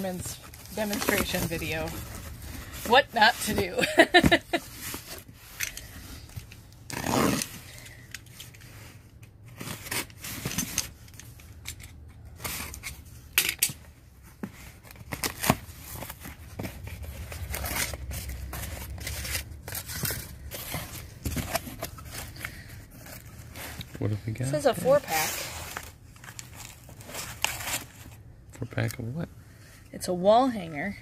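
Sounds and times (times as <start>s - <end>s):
packing tape tearing: 6.9s - 8.5s, 14.9s - 23.8s.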